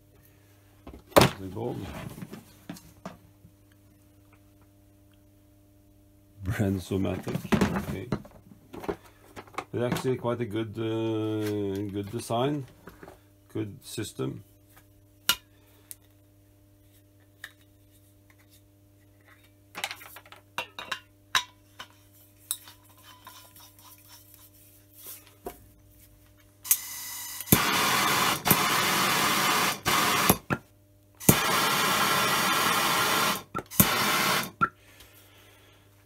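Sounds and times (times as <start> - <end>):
hiss of gas: 31.2 - 34.5
torch flame hissing: 31.2 - 34.5
torch shut-off click: 31.2 - 34.5.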